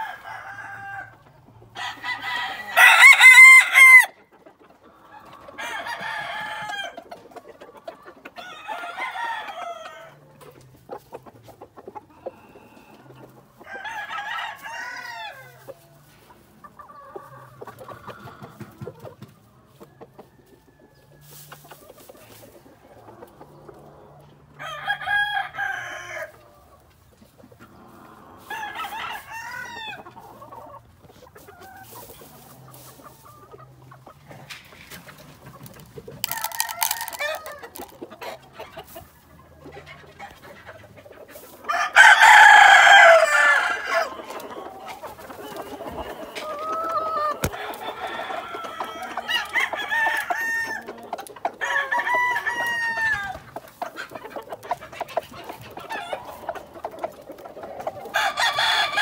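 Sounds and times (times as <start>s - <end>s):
roosters crowing: 0.0s - 4.2s, 5.1s - 7.1s, 8.3s - 10.4s, 12.3s - 15.8s, 23.3s - 26.6s, 27.7s - 30.8s, 36.1s - 39.0s, 41.6s - 54.0s, 57.7s - 59.0s.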